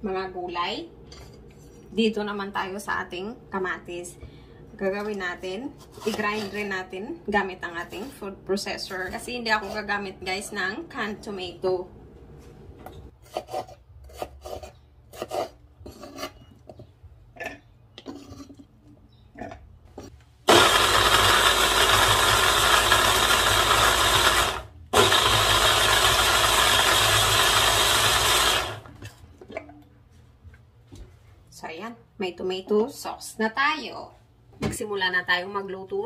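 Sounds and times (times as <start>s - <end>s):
food processor motor grinding: 20.5s - 29.0s.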